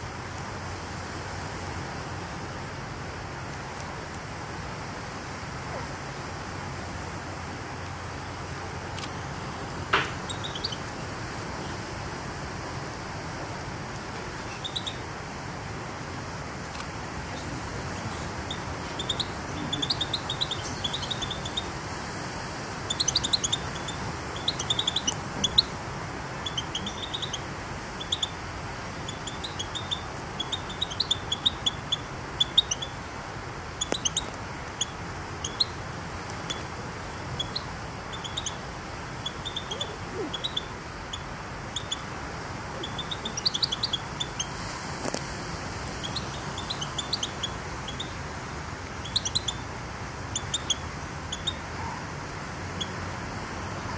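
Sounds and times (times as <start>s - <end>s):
low background noise: 0.0s - 53.9s
small birds chirping: 8.2s - 11.8s, 14.2s - 15.1s, 16.7s - 21.9s, 22.7s - 52.0s.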